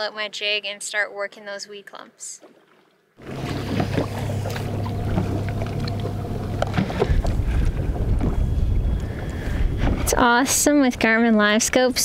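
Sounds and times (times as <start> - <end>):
wind: 0.0 - 12.0
water around a boat: 1.9 - 12.0
electric trolling motor hum: 3.2 - 9.5
wind buffeting microphone: 3.2 - 12.0.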